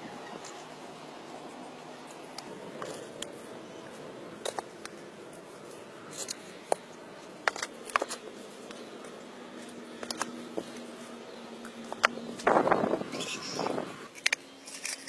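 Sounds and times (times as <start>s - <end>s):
trowel scraping and tapping concrete: 4.4s - 5.0s, 6.1s - 9.2s.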